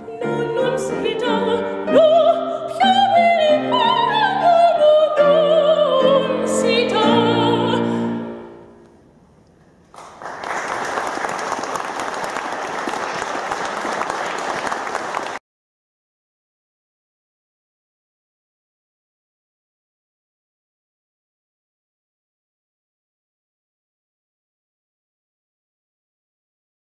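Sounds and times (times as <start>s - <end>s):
operatic soprano singing: 0.0s - 8.5s
piano accompaniment: 0.0s - 8.8s
audience applauding: 9.9s - 15.4s.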